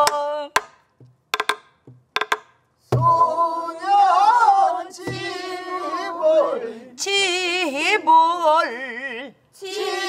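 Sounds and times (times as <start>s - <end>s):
stick clicks on wooden shell: 0.0s - 2.6s
low drum thumps: 1.0s - 3.3s.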